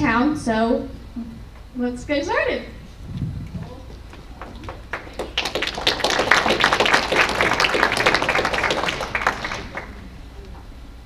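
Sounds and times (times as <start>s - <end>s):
audience applauding: 4.0s - 10.3s.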